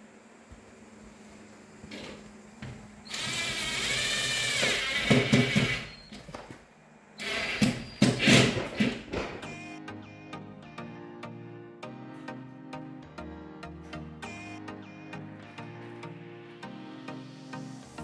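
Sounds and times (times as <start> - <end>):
cordless drill motor whining: 3.1 - 6.1.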